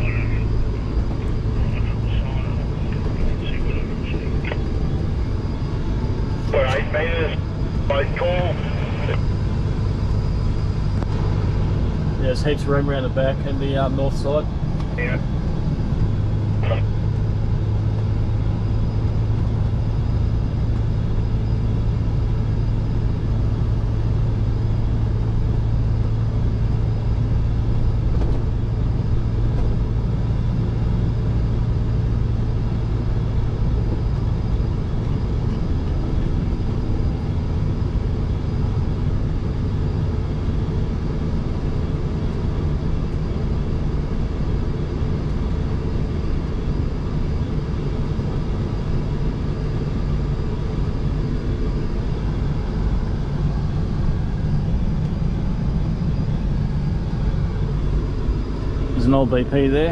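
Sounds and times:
road noise: 0.0s - 9.6s
truck engine drone: 0.0s - 59.9s.

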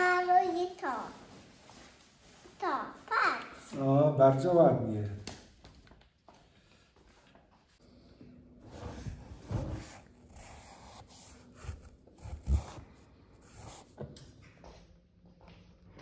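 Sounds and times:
paintbrush on paper: 8.8s - 12.8s, 13.4s - 14.0s.

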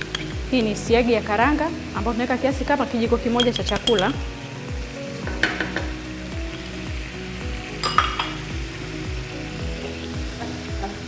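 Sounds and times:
background music with steady beat: 0.0s - 11.0s
sauce sizzling in a pan: 0.0s - 11.0s
spoon knocking against pan: 3.4s - 4.2s, 5.2s - 6.0s, 7.8s - 8.4s.

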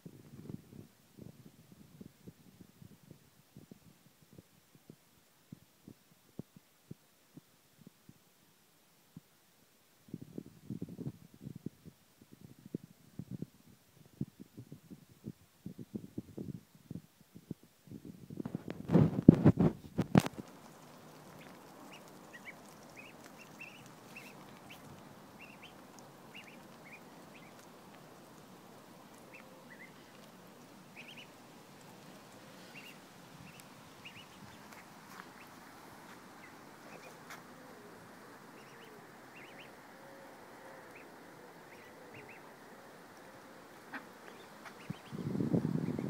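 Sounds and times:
ducklings peeping: 20.0s - 46.0s.

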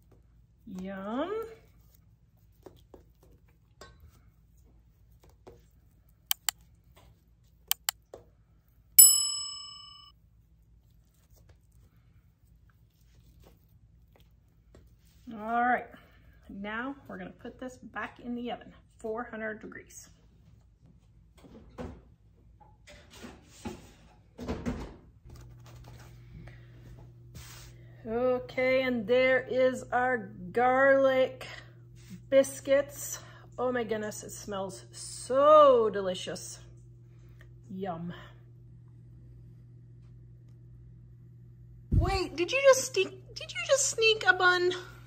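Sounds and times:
computer mouse double clicks: 7.7s - 8.0s
bright bell ding: 9.0s - 10.1s.

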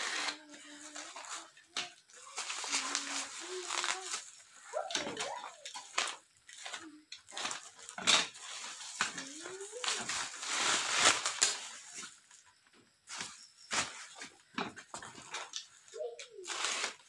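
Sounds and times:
plastic wrap crinkling and tearing: 0.0s - 1.5s, 2.1s - 12.2s, 15.2s - 17.0s.

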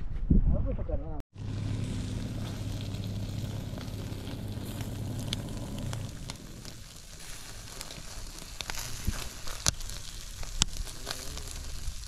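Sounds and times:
crackles and pops: 1.3s - 12.0s
low steady hum: 1.4s - 7.9s
meat sizzling on a grill: 1.4s - 12.0s.

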